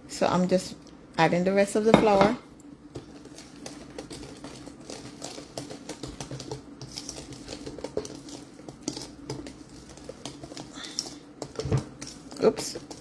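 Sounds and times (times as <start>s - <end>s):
whisk clicking against metal bowl: 2.9s - 13.0s.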